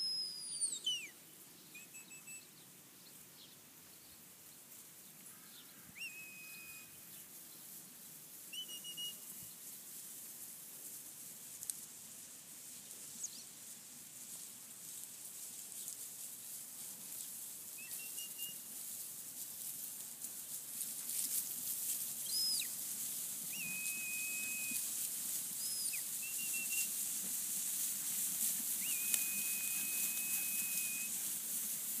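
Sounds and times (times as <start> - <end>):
sheepdog whistle commands: 0.0 - 1.1, 1.8 - 2.4, 6.0 - 7.0, 8.5 - 9.3, 17.8 - 18.6, 22.3 - 22.7, 23.5 - 24.9, 25.6 - 27.0, 28.8 - 31.2.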